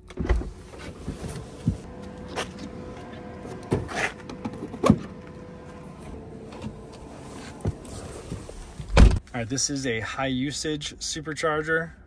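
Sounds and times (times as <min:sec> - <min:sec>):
car door opening: 0:00.0 - 0:09.2.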